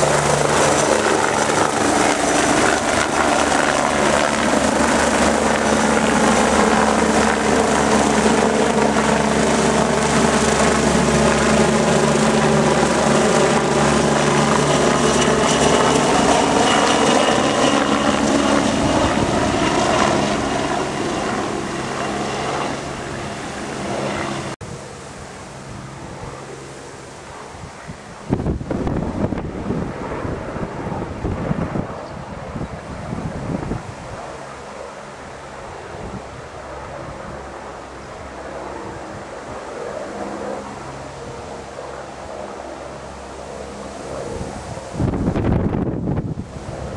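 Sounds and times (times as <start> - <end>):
wind on microphone: 0.0 - 24.8, 27.4 - 34.4, 35.6 - 37.5, 43.6 - 46.9
helicopter flying overhead: 0.0 - 46.9.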